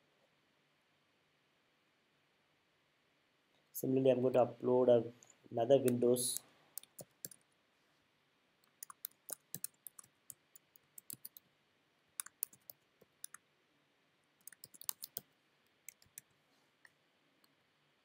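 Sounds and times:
faint computer keyboard typing: 5.8 - 7.5, 8.6 - 11.5, 12.2 - 13.4, 14.4 - 17.6.

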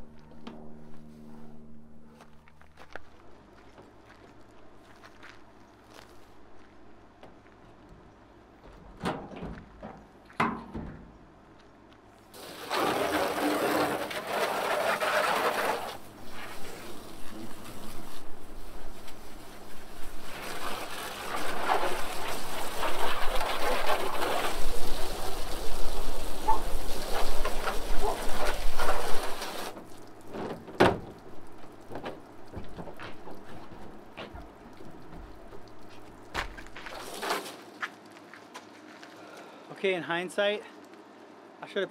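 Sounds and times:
hose spraying water on plastic: 12.3 - 38.1.

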